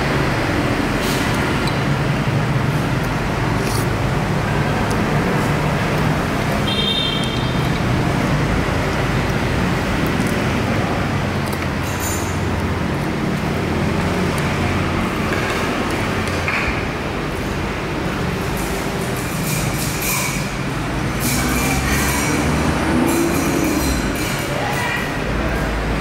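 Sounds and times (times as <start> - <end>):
road traffic: 0.0 - 26.0
vehicle engine droning: 20.9 - 24.6.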